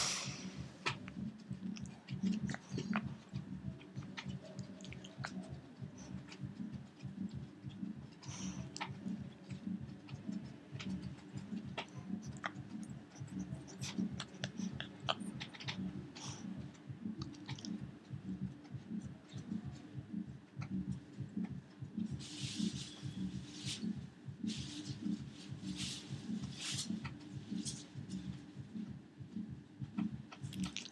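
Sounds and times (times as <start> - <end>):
teeth clicking on hide: 0.8 - 16.5, 17.1 - 17.8, 29.9 - 30.9.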